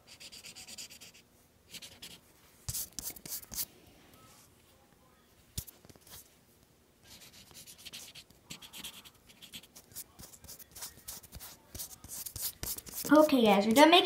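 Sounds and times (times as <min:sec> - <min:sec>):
marker scribbling on paper: 0:00.1 - 0:03.7, 0:05.6 - 0:06.3, 0:07.1 - 0:13.9.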